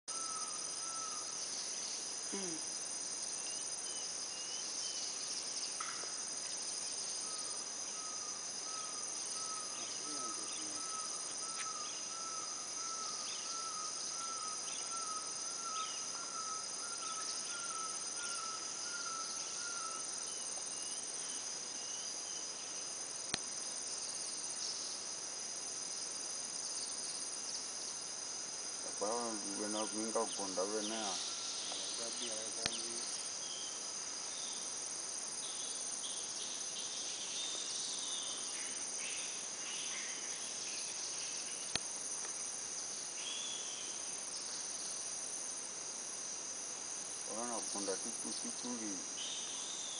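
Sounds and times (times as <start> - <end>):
insect chorus drone: 0.1 - 49.9
faint bird chirps: 7.2 - 22.5.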